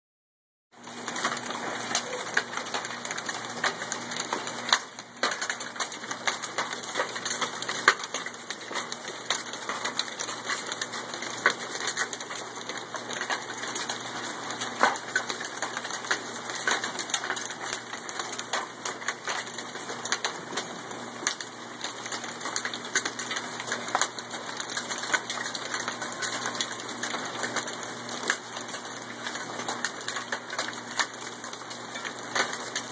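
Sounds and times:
hail clattering on wooden deck: 0:00.8 - 0:32.9.

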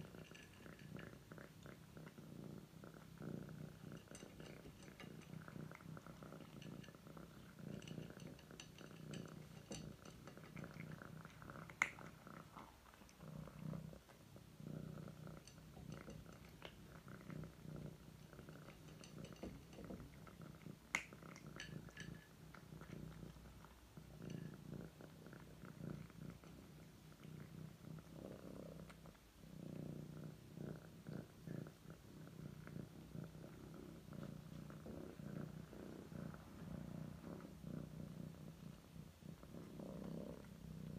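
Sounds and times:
cat purring: 0:00.0 - 0:40.9
cat crunching dry kibble: 0:03.7 - 0:13.9.

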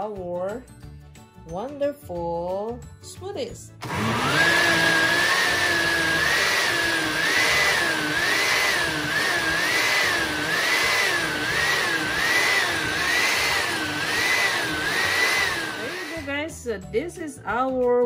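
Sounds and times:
countertop blender running: 0:03.8 - 0:16.3.

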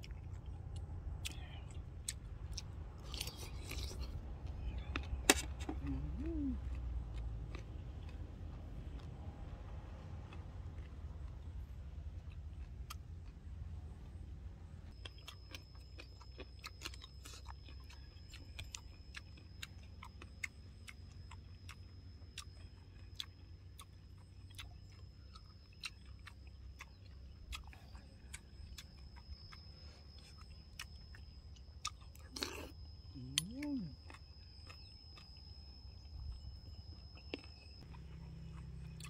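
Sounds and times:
person chewing: 0:00.0 - 0:14.2, 0:14.9 - 0:39.0
low steady rumble: 0:00.0 - 0:39.0
thin high tone: 0:27.3 - 0:38.9.

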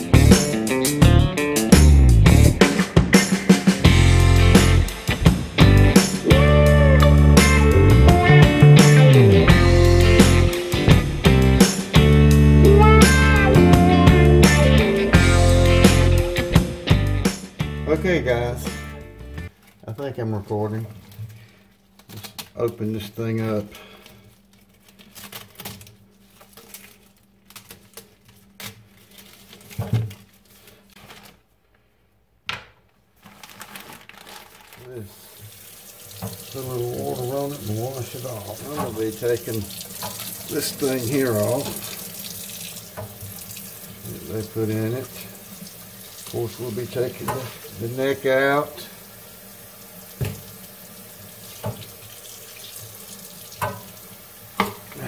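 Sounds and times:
plastic wrapper crinkling: 0:20.7 - 0:31.8, 0:32.8 - 0:43.0
handling sounds: 0:32.8 - 0:43.3
faucet running into sink: 0:35.1 - 0:55.0.

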